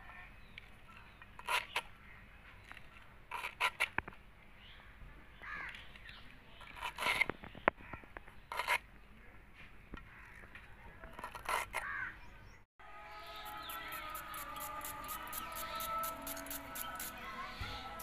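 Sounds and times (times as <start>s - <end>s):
background music: 12.8s - 18.0s.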